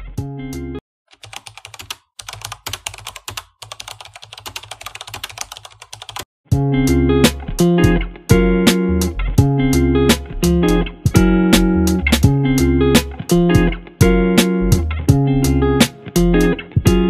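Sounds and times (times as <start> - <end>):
guitar music: 0.0 - 0.8, 6.5 - 17.0
keyboard typing: 1.1 - 6.3.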